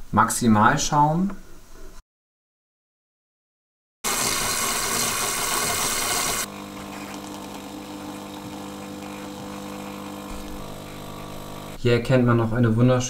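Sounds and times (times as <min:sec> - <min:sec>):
loud steam hiss: 0:04.1 - 0:06.5
coffee machine pump hum: 0:04.1 - 0:11.8.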